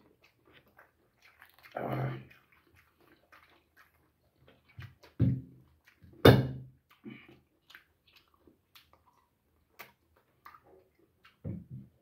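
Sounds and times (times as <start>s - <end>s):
man tearing and chewing meat: 0.0s - 12.0s
mouth clicks and smacks: 0.0s - 12.0s.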